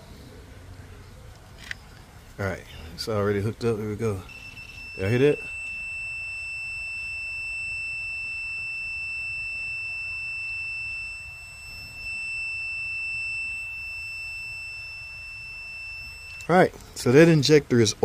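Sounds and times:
multimeter continuity beep: 0:04.1 - 0:17.5.

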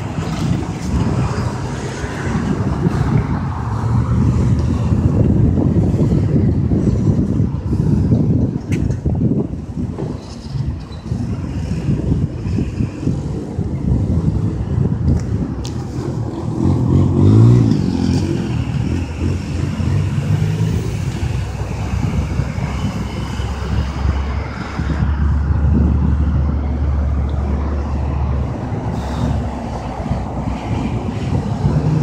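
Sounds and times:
low engine hum: 0:00.0 - 0:32.0
vehicle engine revving: 0:15.6 - 0:23.0.

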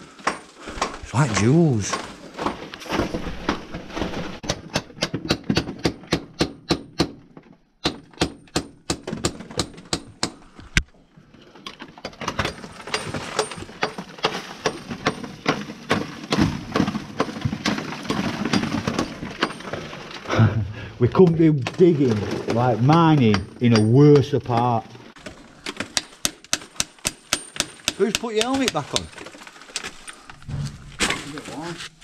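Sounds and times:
hammer tapping on rock: 0:26.0 - 0:29.1.

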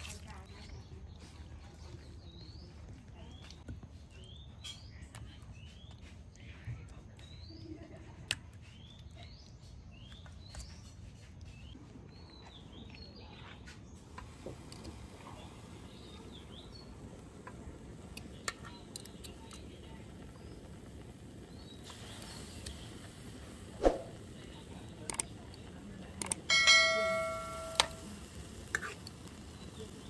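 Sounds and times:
small birds chirping: 0:00.0 - 0:30.0
fat hissing in a grill pan: 0:14.0 - 0:30.0.

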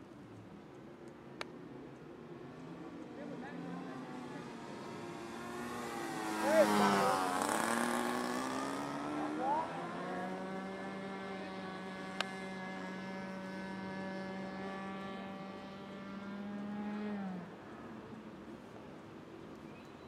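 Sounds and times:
model airplane engine droning: 0:03.5 - 0:18.8.

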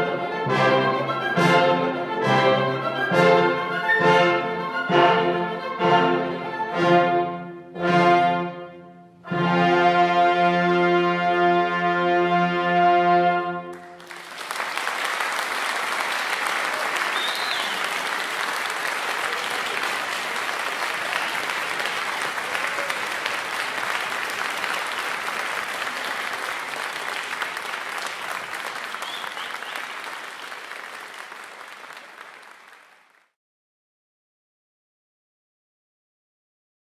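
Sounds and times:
audience applauding: 0:13.7 - 0:33.4
short whistles: 0:17.1 - 0:17.9, 0:29.0 - 0:30.0.

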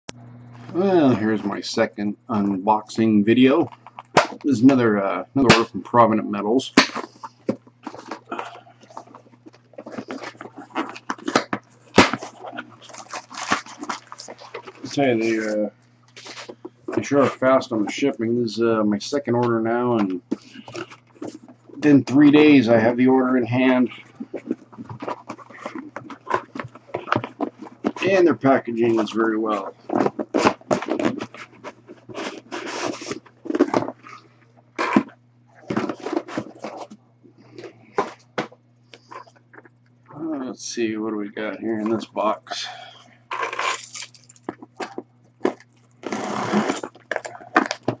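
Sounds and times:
cardboard rustling and scraping: 0:06.7 - 0:18.4, 0:19.2 - 0:39.7, 0:41.7 - 0:42.2, 0:43.3 - 0:48.0.

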